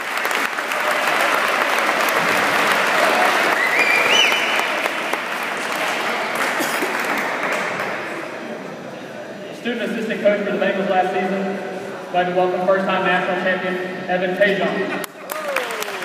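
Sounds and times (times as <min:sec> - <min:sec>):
audience applauding: 0:00.0 - 0:08.2, 0:15.0 - 0:16.0.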